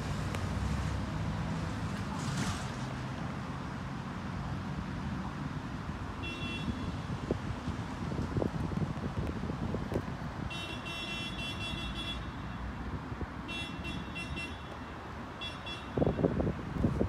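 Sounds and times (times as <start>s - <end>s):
wind buffeting microphone: 6.7s - 10.5s, 15.9s - 17.0s.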